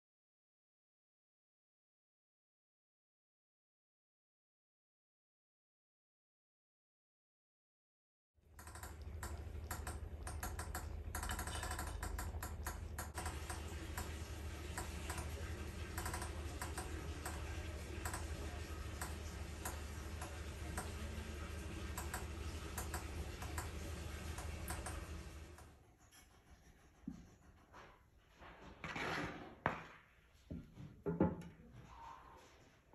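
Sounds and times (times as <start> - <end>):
steady low hum: 8.5 - 25.6.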